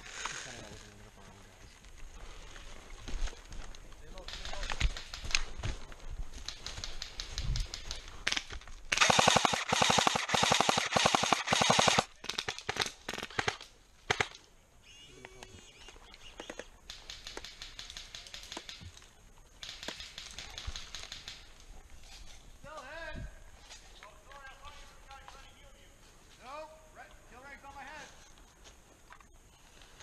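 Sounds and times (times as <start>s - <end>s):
airsoft guns firing bursts: 6.5s - 14.4s
distant rapid gunfire: 8.9s - 12.1s.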